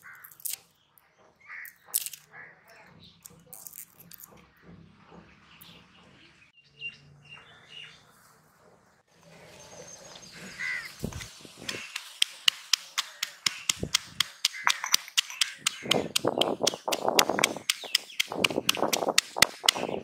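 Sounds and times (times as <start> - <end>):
garlic skins crackling: 0.0 - 0.6, 10.6 - 19.8
birds chirping: 0.0 - 20.0
crow cawing: 10.5 - 10.9
stone pestle thuds in mortar: 11.7 - 20.0.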